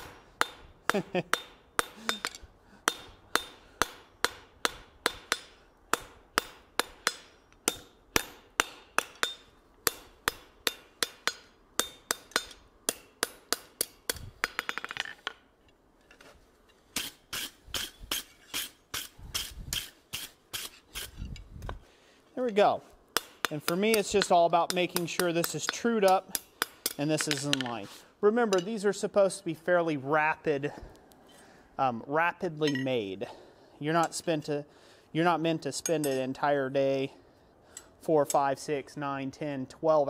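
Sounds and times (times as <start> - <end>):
hammer striking hot steel on anvil: 0.0 - 15.0, 23.1 - 27.6.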